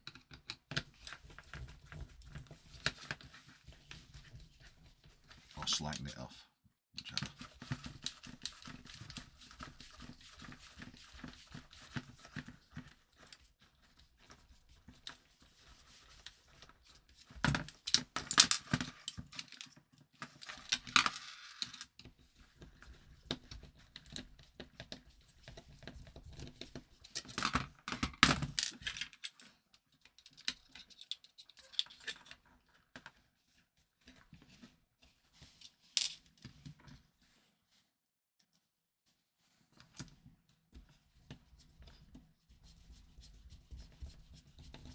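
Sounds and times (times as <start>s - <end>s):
small parts clicking and rattling: 20.4s - 21.9s, 27.1s - 32.4s.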